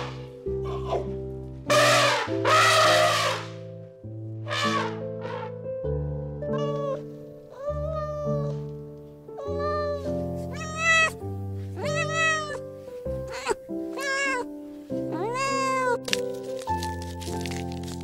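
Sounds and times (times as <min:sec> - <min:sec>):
soft background music: 0:00.0 - 0:18.0
kitten meowing: 0:06.5 - 0:08.6, 0:09.4 - 0:11.2, 0:11.8 - 0:12.6, 0:13.2 - 0:14.5, 0:15.1 - 0:16.1.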